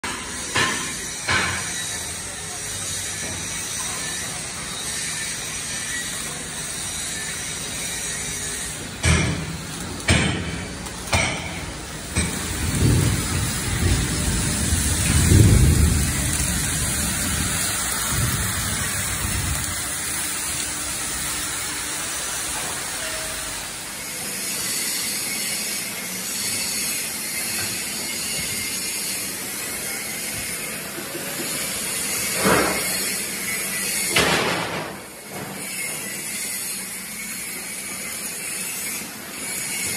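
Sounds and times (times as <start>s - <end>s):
steady welding hiss: 0.0s - 39.9s
sharp metal knocks: 9.0s - 9.5s, 10.1s - 12.5s
heavy low rumble: 12.6s - 20.1s.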